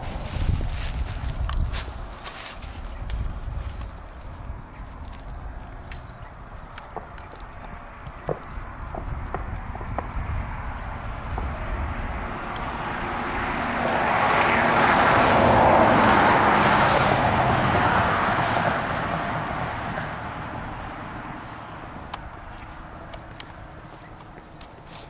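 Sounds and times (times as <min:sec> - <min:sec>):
road noise: 0:00.0 - 0:25.0
passing vehicle engine: 0:07.8 - 0:25.0.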